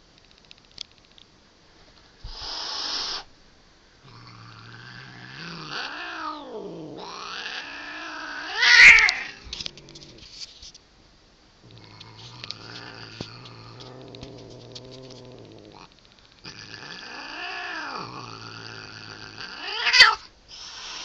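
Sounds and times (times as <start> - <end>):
cat hissing: 2.2 - 3.3, 4.0 - 10.7, 11.6 - 15.9, 16.5 - 21.0
cat growling and yowling: 4.0 - 10.3, 11.7 - 20.3.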